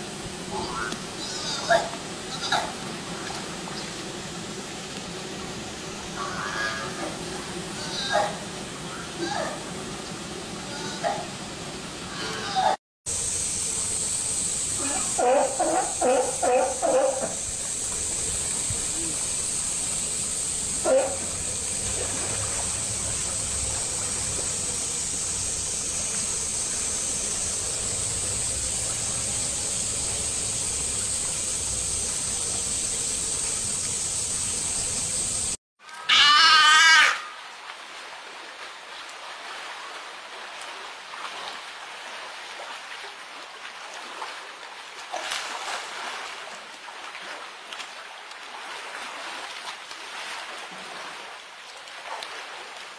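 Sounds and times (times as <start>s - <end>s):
pool water splashing: 0.0s - 52.9s
seal pup bleating: 0.5s - 2.7s, 7.8s - 8.4s, 10.7s - 11.2s, 12.1s - 12.8s, 14.8s - 17.3s, 36.0s - 37.3s.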